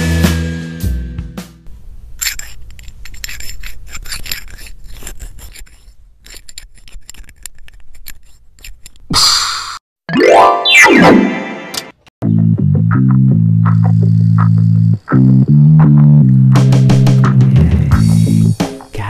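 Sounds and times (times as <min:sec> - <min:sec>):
rustling: 0:02.1 - 0:09.1
lock pick clicking and scraping: 0:02.2 - 0:09.1.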